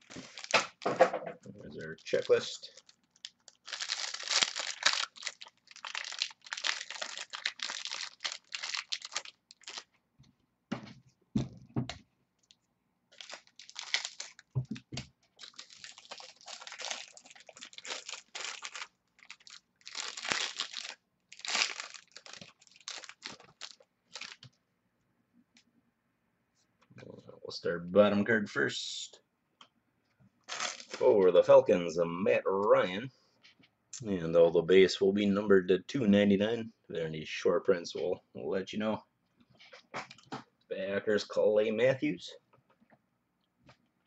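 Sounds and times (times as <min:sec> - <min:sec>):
plastic wrapping crinkling and tearing: 0:00.0 - 0:01.0, 0:01.8 - 0:10.0, 0:12.4 - 0:24.5, 0:30.5 - 0:31.2.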